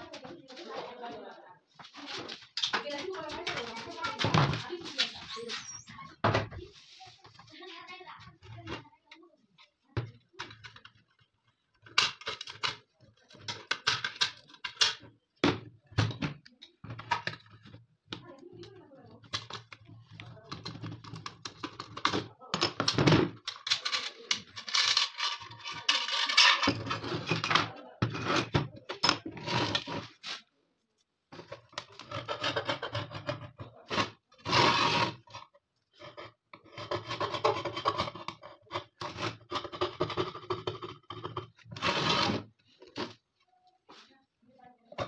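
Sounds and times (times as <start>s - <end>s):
hand tools scraping metal: 23.8s - 27.4s.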